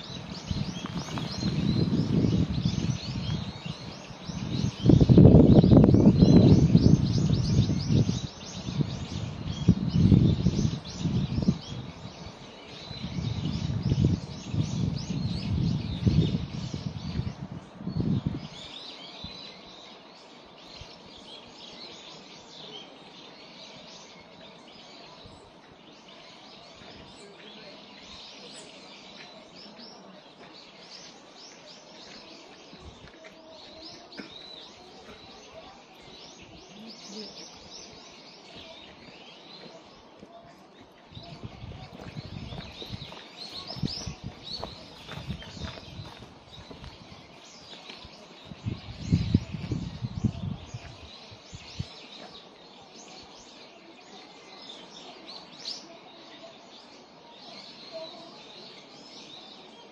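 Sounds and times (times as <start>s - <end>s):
low rumbling on microphone: 0.0s - 19.4s, 32.7s - 52.1s
songbirds chirping: 0.0s - 59.9s.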